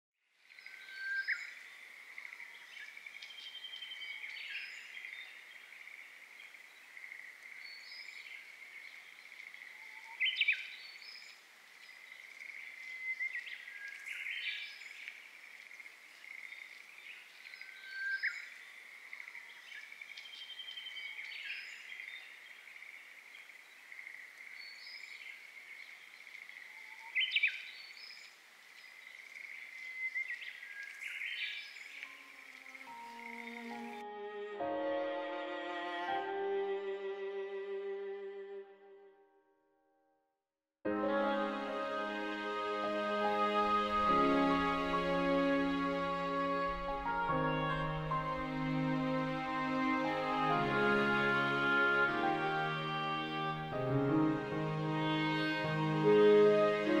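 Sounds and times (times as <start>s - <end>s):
birds calling and singing: 0.5s - 34.0s.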